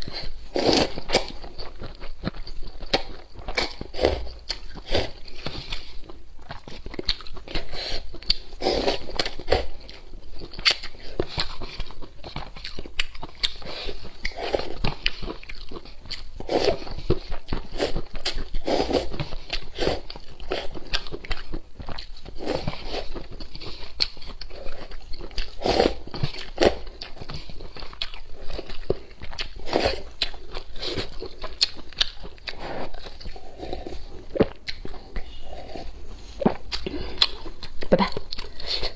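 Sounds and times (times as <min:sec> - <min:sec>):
slurping noodles: 0:00.0 - 0:01.4, 0:07.5 - 0:09.8, 0:16.4 - 0:20.8, 0:24.6 - 0:26.8, 0:29.4 - 0:31.2
wet chewing and lip smacks: 0:00.0 - 0:38.9.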